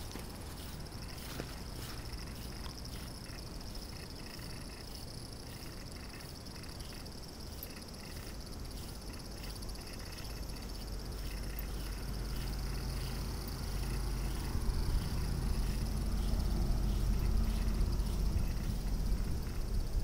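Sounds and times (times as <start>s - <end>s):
insects chorus: 0.0s - 20.0s.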